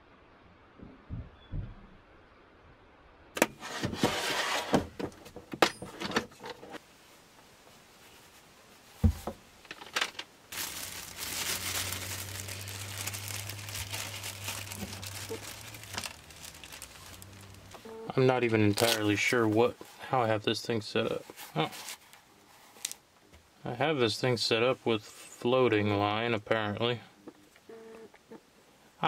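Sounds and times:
plastic packaging crinkling: 10.1s - 17.9s, 18.5s - 19.4s, 21.5s - 23.0s.

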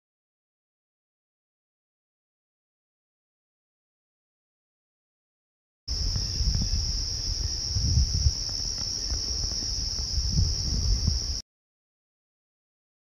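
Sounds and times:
insects trilling: 5.9s - 11.4s.

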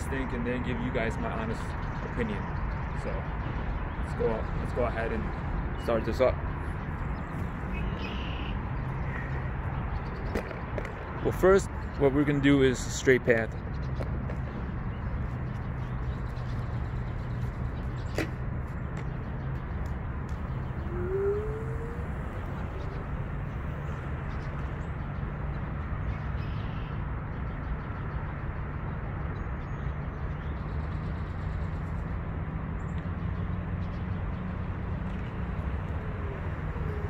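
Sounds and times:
distant city traffic rumble: 0.0s - 37.0s
bird call: 7.7s - 9.4s, 20.3s - 23.2s.

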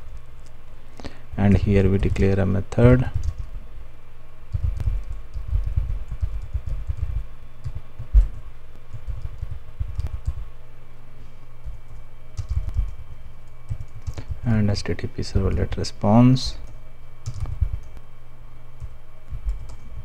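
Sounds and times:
typing on computer keyboard: 3.1s - 3.5s, 4.5s - 10.5s, 11.6s - 13.0s, 13.7s - 14.4s, 16.6s - 17.9s, 18.8s - 19.9s.

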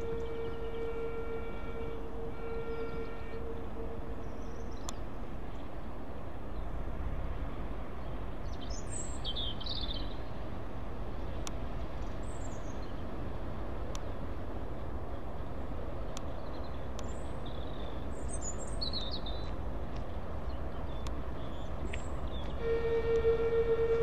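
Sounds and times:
birds chirping: 0.0s - 6.8s, 15.3s - 24.0s
diesel locomotive engine rumble: 0.0s - 24.0s
held whining tone: 22.6s - 24.0s.

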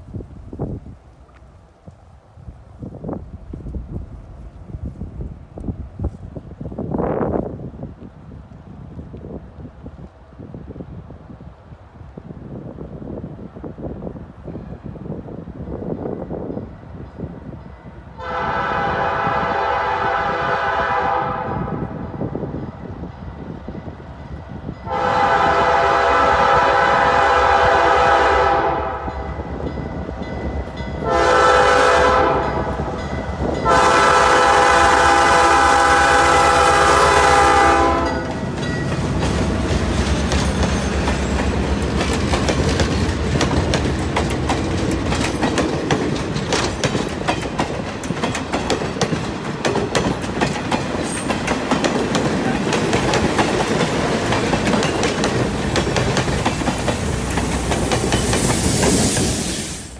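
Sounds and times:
locomotive horn blasts: 18.2s - 22.0s, 24.8s - 29.2s, 31.0s - 32.9s, 33.6s - 38.4s
train wheels clicking over rail joints: 38.1s - 59.9s.

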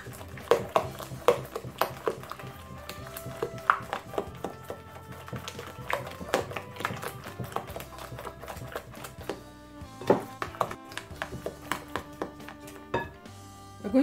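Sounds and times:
background music: 0.0s - 14.0s
spatula tapping glass bowl: 10.0s - 13.2s.

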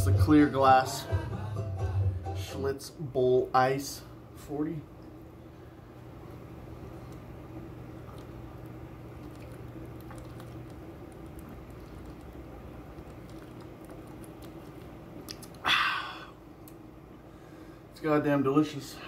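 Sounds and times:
steady low hum: 0.0s - 19.0s
swallowing clicks: 8.0s - 15.7s.

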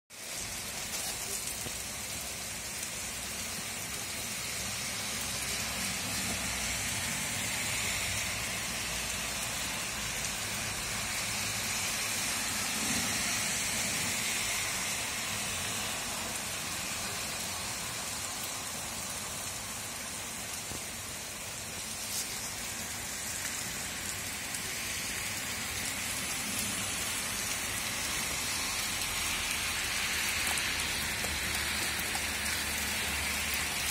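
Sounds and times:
heavy rain on street: 0.1s - 33.9s.

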